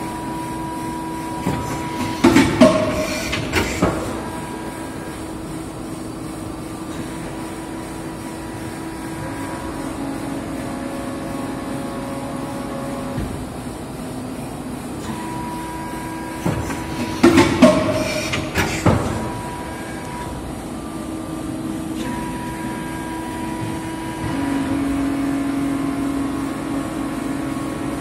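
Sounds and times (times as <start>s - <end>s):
injection moulding machine hum: 0.0s - 28.0s.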